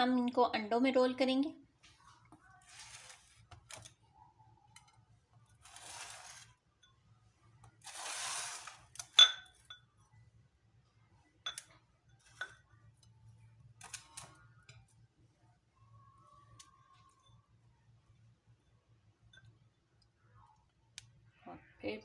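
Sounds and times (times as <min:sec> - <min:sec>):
glass bowl scraping on wooden table: 0:05.6 - 0:06.6, 0:07.8 - 0:08.9
glass clinking: 0:09.0 - 0:10.0, 0:11.4 - 0:12.7.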